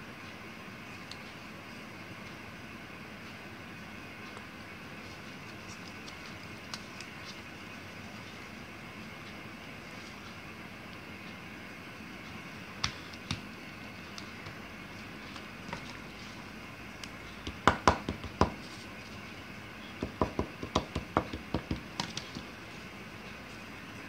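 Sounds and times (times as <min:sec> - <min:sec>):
paper crinkling and tapping: 0:05.1 - 0:07.5, 0:14.1 - 0:16.4, 0:17.3 - 0:19.2, 0:20.0 - 0:22.6.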